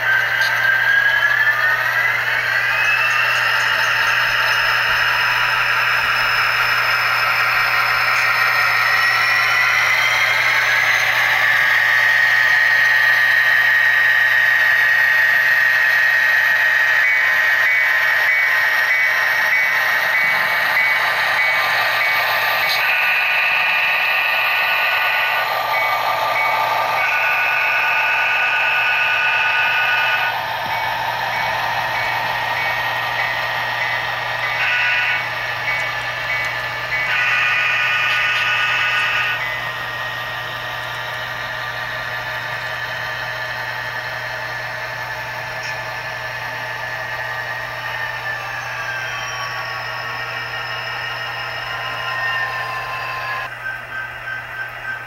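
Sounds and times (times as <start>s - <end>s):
locomotive bell ringing: 0.0s - 55.0s
model diesel engine sound: 0.0s - 55.0s
locomotive horn blasts: 34.4s - 39.5s.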